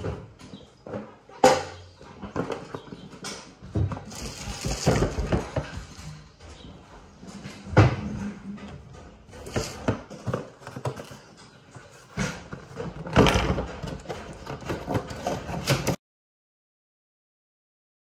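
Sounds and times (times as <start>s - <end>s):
kitchen handling knocks and clatters: 0.0s - 16.0s.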